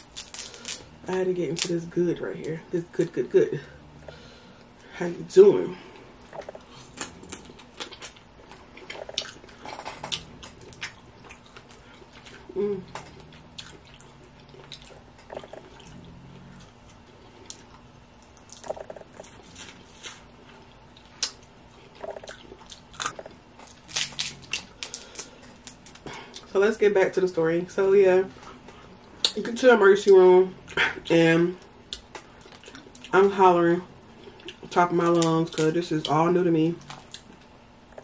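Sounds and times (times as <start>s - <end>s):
chewing and lip smacking: 6.2s - 26.5s, 36.8s - 38.0s
crab shells cracking: 22.7s - 26.1s.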